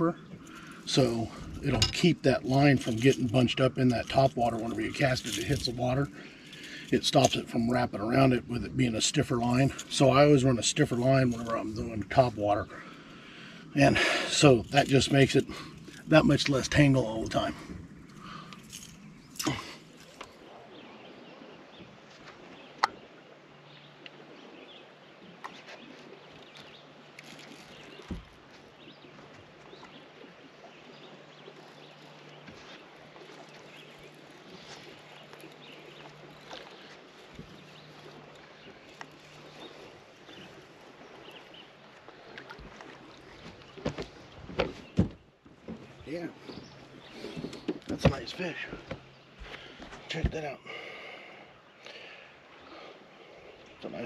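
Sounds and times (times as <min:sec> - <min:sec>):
fishing gear clicks and knocks: 0:00.0 - 0:08.3, 0:08.9 - 0:12.4, 0:14.3 - 0:20.4, 0:25.4 - 0:30.0, 0:31.0 - 0:50.5
light water noise: 0:00.0 - 0:54.0
dull thump: 0:43.8 - 0:46.7.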